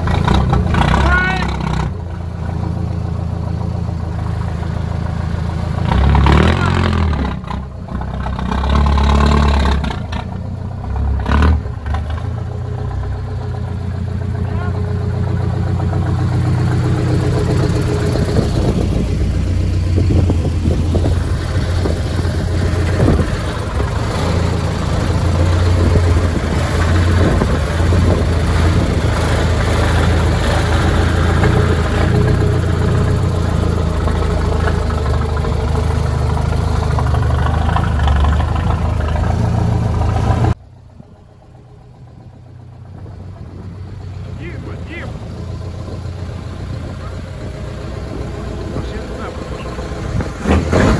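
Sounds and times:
truck engine low drone: 0.0s - 50.9s.

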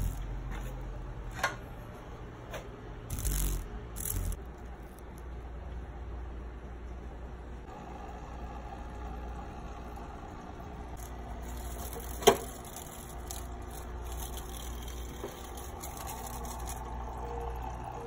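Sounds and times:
aquarium filter humming: 0.0s - 18.0s.

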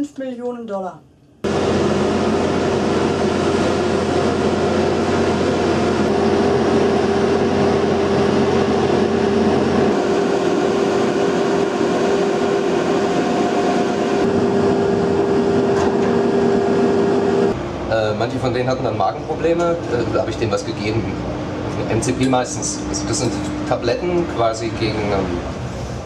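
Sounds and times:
deep hum: 1.4s - 20.2s
deck cranes machinery noise: 1.4s - 26.0s.

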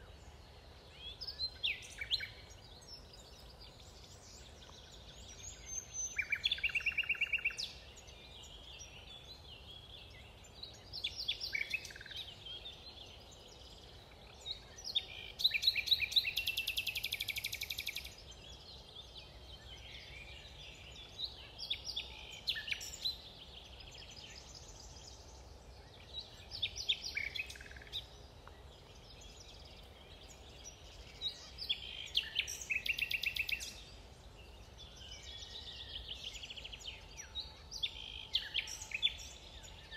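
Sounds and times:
low background hiss: 0.0s - 39.9s
songbirds singing with trills: 0.0s - 39.9s.

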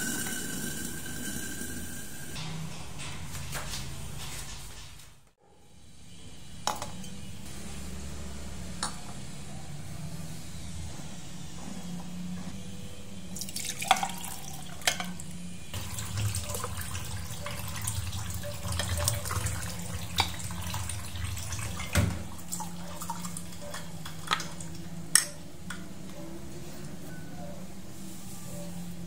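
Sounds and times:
liquid pouring over ice: 13.4s - 14.9s.

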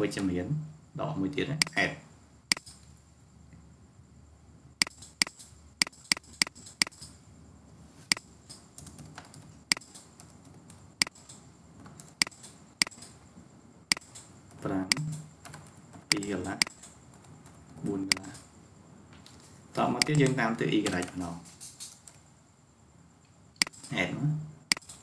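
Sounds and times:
computer mouse clicks: 2.5s - 2.9s, 4.8s - 7.2s, 8.1s - 13.2s, 13.9s - 14.3s, 14.9s - 17.0s, 17.7s - 18.5s, 19.2s - 22.2s, 23.6s - 24.0s, 24.7s - 25.0s
keyboard key presses: 4.8s - 7.1s, 14.9s - 17.0s, 17.8s - 18.4s, 20.0s - 21.9s.

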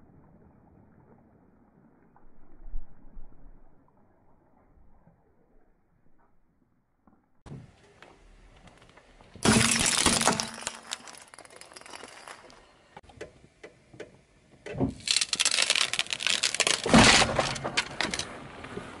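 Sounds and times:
light bulbs shattering under tyre: 9.4s - 12.7s, 14.9s - 18.5s
glass panes crunching under tyre: 9.4s - 12.8s, 14.9s - 18.4s.

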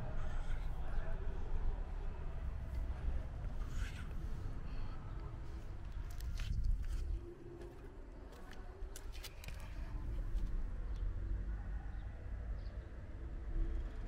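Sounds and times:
wind rumble: 0.0s - 8.1s.

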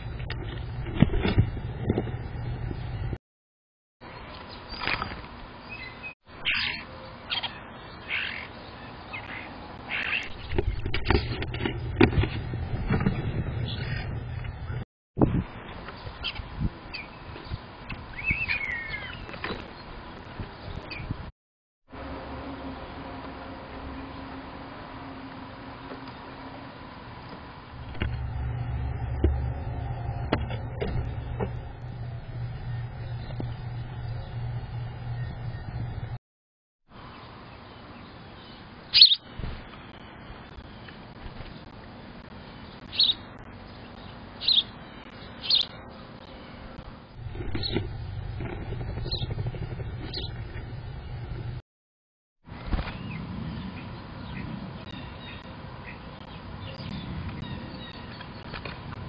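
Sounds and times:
low hum: 0.0s - 3.2s, 21.9s - 36.2s, 45.0s - 51.6s
low steady rumble: 0.0s - 3.2s, 26.4s - 36.2s, 39.4s - 51.6s
starling harsh calls: 6.4s - 8.5s, 38.9s - 39.3s.

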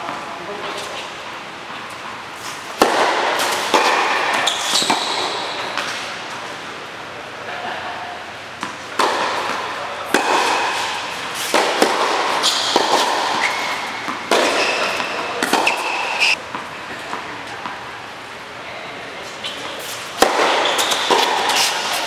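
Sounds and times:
tennis shoes squeaking on court: 0.0s - 6.3s, 8.6s - 17.5s, 19.2s - 22.0s
tennis ball bouncing: 0.8s - 6.1s, 8.6s - 17.9s, 19.8s - 22.0s
tennis racket striking ball: 1.8s - 6.0s, 8.6s - 17.2s, 19.8s - 22.0s.

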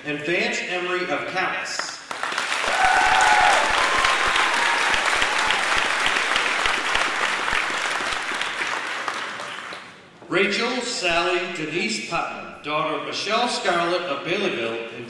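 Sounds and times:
audience applauding: 2.1s - 10.0s
vocal cheer: 2.6s - 6.3s.

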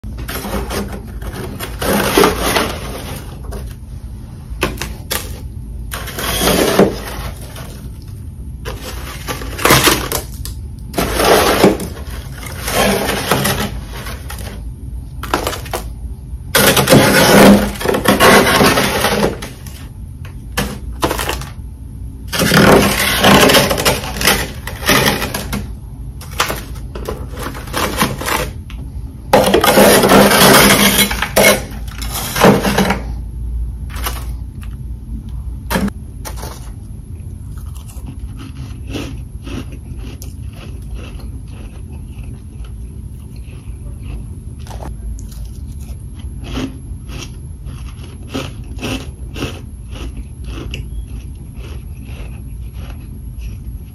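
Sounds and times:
metal spatula scraping frost: 0.2s - 3.7s, 5.2s - 7.8s, 11.0s - 14.6s, 16.6s - 19.8s, 22.3s - 25.6s, 29.4s - 33.1s.

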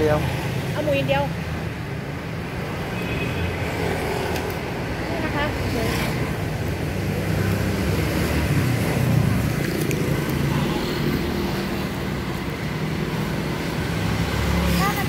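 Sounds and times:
scooters and cars passing: 0.0s - 15.0s.

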